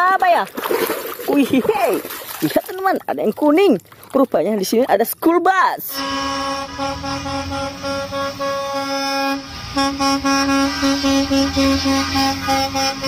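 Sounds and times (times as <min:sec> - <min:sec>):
bus horns honking: 0:05.9 - 0:13.0
low rumble of buses: 0:05.9 - 0:13.0.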